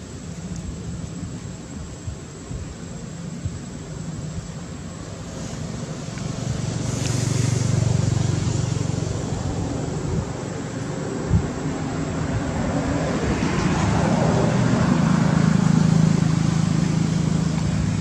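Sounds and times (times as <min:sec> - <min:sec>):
outdoor background noise: 0:00.0 - 0:18.0
vehicle engine hum passing by: 0:05.0 - 0:18.0.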